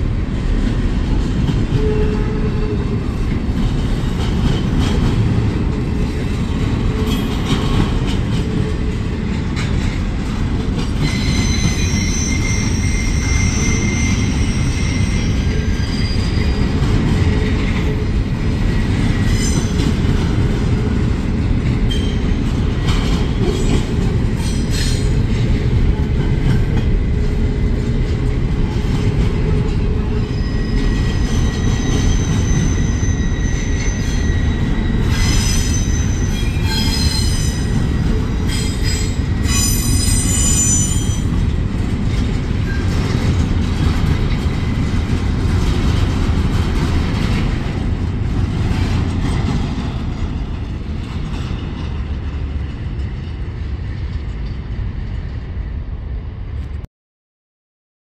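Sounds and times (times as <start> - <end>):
freight train rumbling past: 0.0 - 56.9
high wheel squeal: 11.0 - 16.8, 30.2 - 37.8, 38.4 - 41.3.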